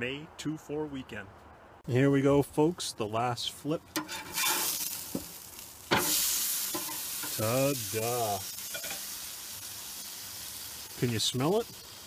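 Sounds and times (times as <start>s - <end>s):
steak sizzling on a grill: 3.9s - 12.0s.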